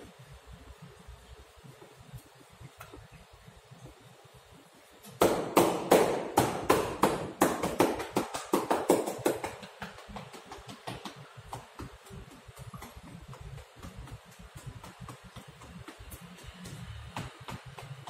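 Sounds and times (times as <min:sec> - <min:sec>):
hands tapping and slapping on body: 0:05.1 - 0:18.0.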